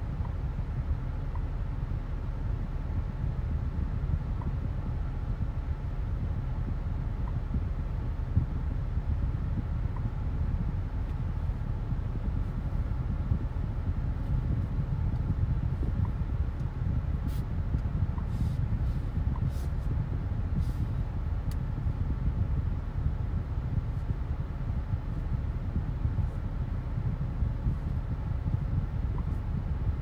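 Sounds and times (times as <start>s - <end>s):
car engine and road noise: 0.0s - 30.0s.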